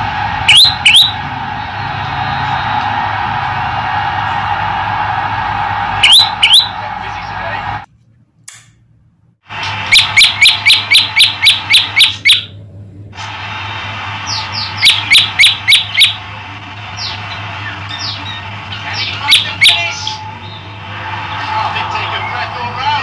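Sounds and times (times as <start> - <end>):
bird chirping: 0.5 - 1.2, 6.0 - 6.7, 9.9 - 12.5, 14.2 - 16.2, 17.0 - 20.8.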